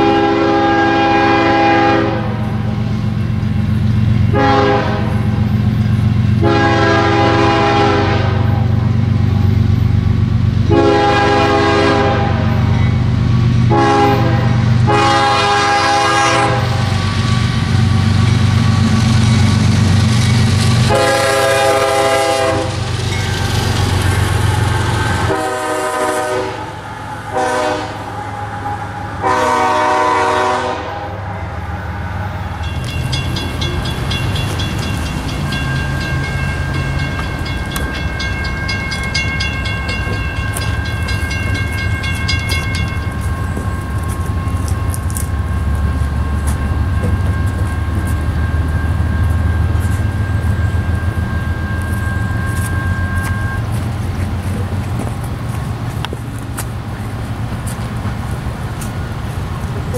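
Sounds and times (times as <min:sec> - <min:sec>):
locomotive air horn blasts: 0:00.0 - 0:02.6, 0:04.3 - 0:05.4, 0:06.4 - 0:08.7, 0:10.7 - 0:12.7, 0:13.7 - 0:17.0, 0:20.8 - 0:22.9, 0:25.2 - 0:28.2, 0:29.2 - 0:31.3
low train rumble: 0:00.0 - 0:59.9
steady high ringing: 0:32.3 - 0:55.8.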